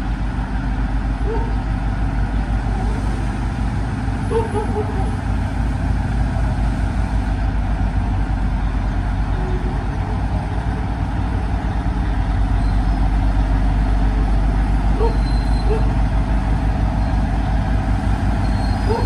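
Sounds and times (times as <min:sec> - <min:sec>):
diesel locomotive engine throbbing: 0:00.0 - 0:19.0.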